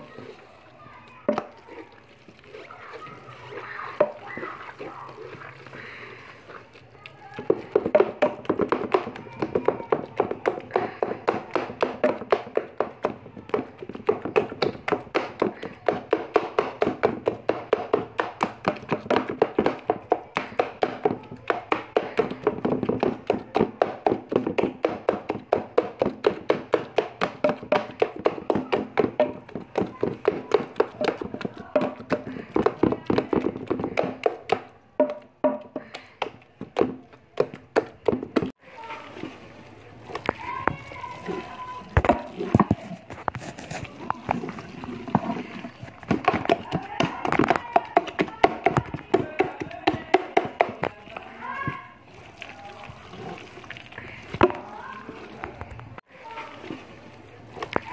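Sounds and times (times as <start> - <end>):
masher pounding in metal pot: 7.4 - 35.9, 44.1 - 51.0.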